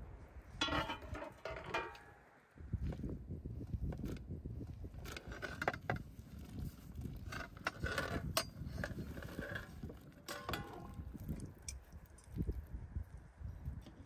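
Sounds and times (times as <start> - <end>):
metal skimmer scraping an enamel plate: 0.6 - 2.2, 7.3 - 11.0.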